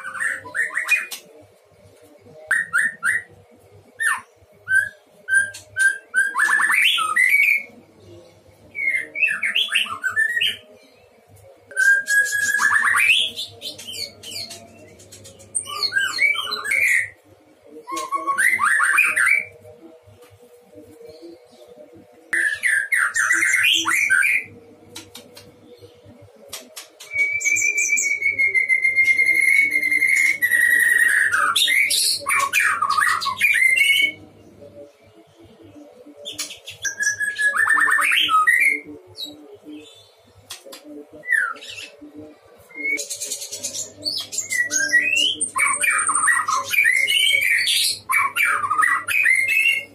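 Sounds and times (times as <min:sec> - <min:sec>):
bird singing whistles and trills: 0:02.5 - 0:03.3, 0:04.0 - 0:07.7, 0:11.7 - 0:17.2, 0:17.8 - 0:19.6, 0:22.3 - 0:25.1, 0:26.8 - 0:34.2, 0:36.2 - 0:40.1, 0:42.7 - 0:49.9.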